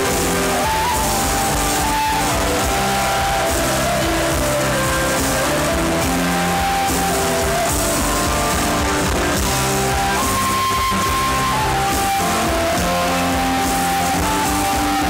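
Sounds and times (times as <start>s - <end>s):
live band playing slow ballad: 0.0s - 15.0s.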